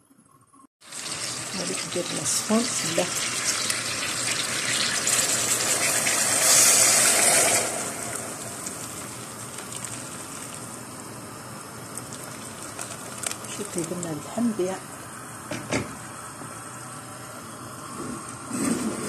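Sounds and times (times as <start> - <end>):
water gushing into pot: 0.8 - 10.9, 11.8 - 14.6
hiss from hot pot: 0.9 - 8.7.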